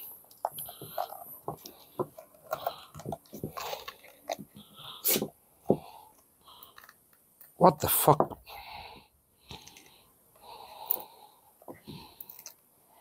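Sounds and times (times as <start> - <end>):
resin crunching and crackling: 0.3 - 5.2.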